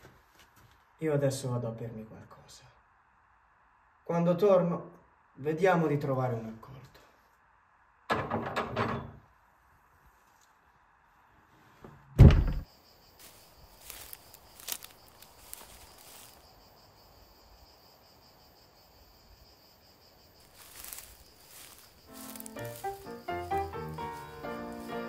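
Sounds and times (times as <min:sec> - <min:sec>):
faint high-pitched hiss: 0:08.7 - 0:25.0
heavy thud: 0:12.2 - 0:12.7
faint knocks and shuffling: 0:13.2 - 0:16.5, 0:20.4 - 0:25.0.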